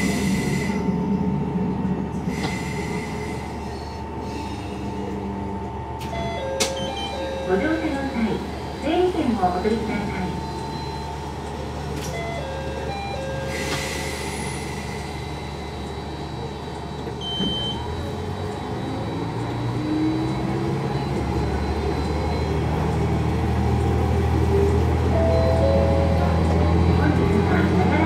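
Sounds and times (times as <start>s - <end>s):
diesel train engine revving: 0.0s - 6.0s, 17.8s - 28.0s
short high beep: 25.2s - 27.0s.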